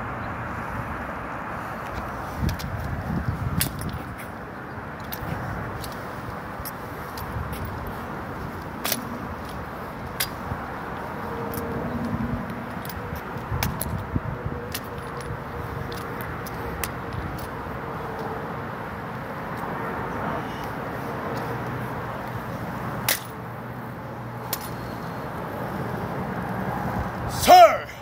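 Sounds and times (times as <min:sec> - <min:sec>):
light metallic rattle: 0:23.0 - 0:23.5.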